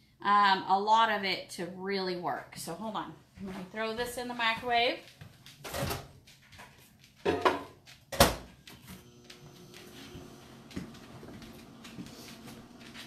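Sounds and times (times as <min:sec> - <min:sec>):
microwave humming: 0:08.7 - 0:13.0.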